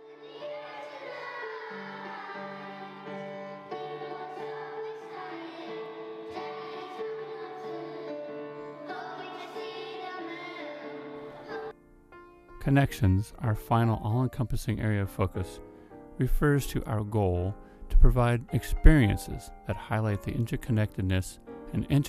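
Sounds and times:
children's choir singing: 0:00.0 - 0:11.8.

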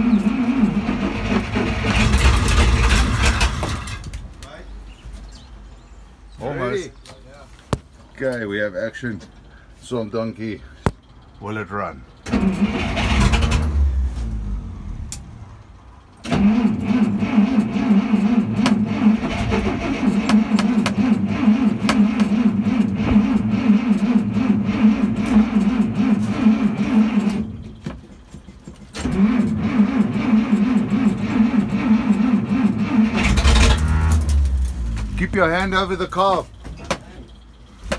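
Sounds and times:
starter motor cranking engine: 0:00.0 - 0:04.0, 0:12.2 - 0:14.0, 0:16.2 - 0:27.6, 0:28.9 - 0:36.0.

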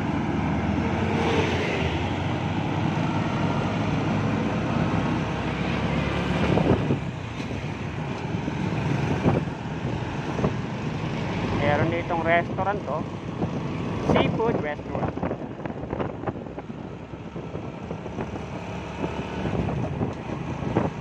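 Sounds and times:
road rumble: 0:00.0 - 0:21.0
vehicle engine hum: 0:00.0 - 0:21.0
wind on the microphone: 0:06.3 - 0:08.0, 0:08.8 - 0:11.0, 0:11.6 - 0:21.0.

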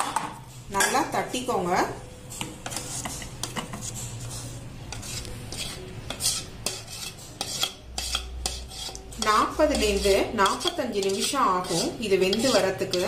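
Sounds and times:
utensil scraping batter from vessel: 0:02.7 - 0:13.0.

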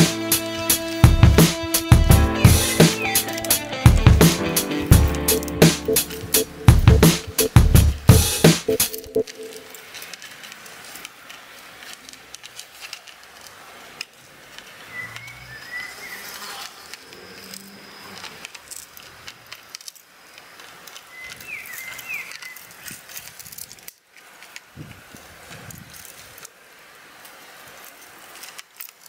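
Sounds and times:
short high chirps: 0:02.3 - 0:09.6
dogs gnawing a dry stick: 0:09.0 - 0:26.6, 0:27.2 - 0:29.0.

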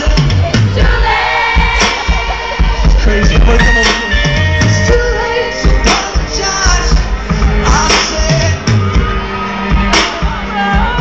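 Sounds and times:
live band playing pop-rock: 0:00.0 - 0:11.0.

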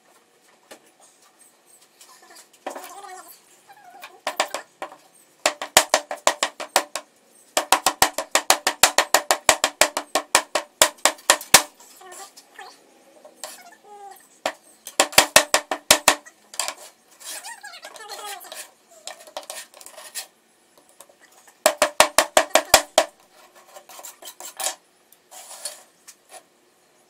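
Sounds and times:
mallet pounding sand: 0:04.3 - 0:07.0, 0:07.6 - 0:11.8, 0:15.0 - 0:16.7, 0:21.7 - 0:23.2.

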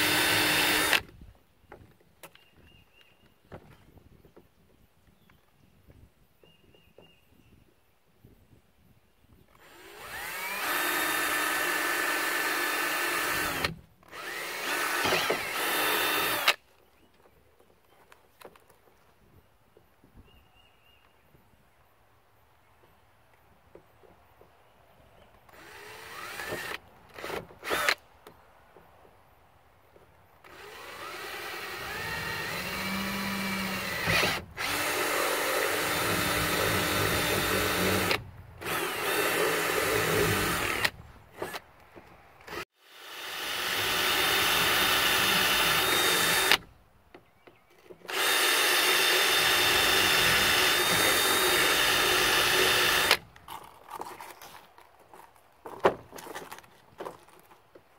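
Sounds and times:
cordless drill boring plastic: 0:00.0 - 0:01.0, 0:09.6 - 0:16.6, 0:25.6 - 0:28.0, 0:30.5 - 0:41.6, 0:42.5 - 0:46.6, 0:48.1 - 0:53.2.

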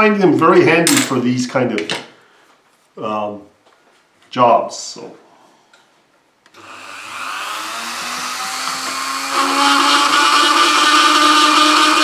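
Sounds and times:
rotary tool whining: 0:06.5 - 0:12.0
rotary tool bit grinding metal: 0:06.6 - 0:12.0.

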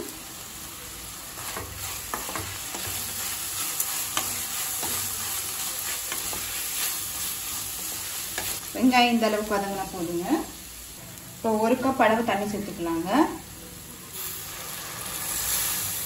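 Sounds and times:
onions sizzling in oil: 0:00.0 - 0:16.0.

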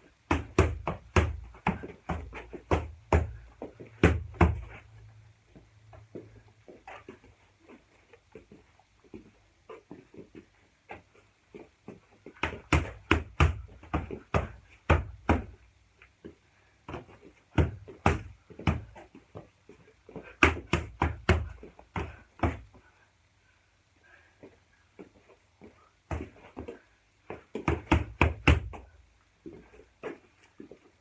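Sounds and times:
boxing gloves hitting focus mitts: 0:00.2 - 0:04.8, 0:11.9 - 0:15.6, 0:16.9 - 0:19.0, 0:20.2 - 0:22.7, 0:26.1 - 0:28.9.

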